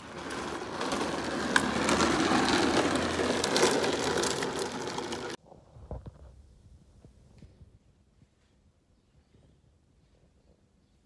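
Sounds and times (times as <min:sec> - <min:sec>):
plastic wheels rattling on bricks: 0:00.0 - 0:05.4.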